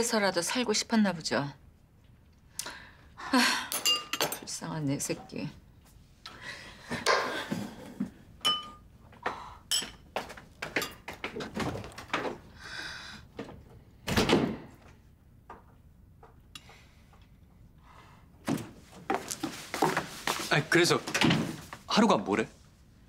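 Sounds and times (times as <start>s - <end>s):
tableware clinking against bowls: 3.7s - 4.4s, 8.4s - 8.9s, 9.7s - 10.0s, 10.7s - 11.1s.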